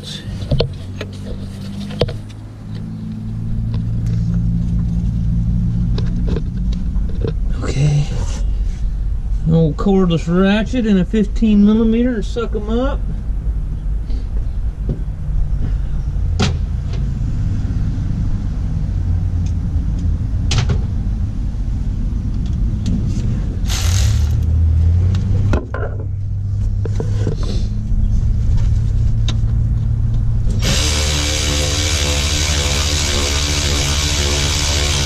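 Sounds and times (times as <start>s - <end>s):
steady low rumble: 0.0s - 35.0s
cordless ratchet running: 23.7s - 24.4s, 30.6s - 35.0s.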